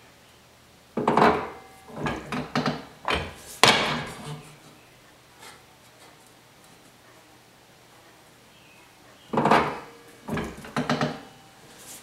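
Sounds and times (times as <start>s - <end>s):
sheet metal rattling: 1.1s - 4.5s.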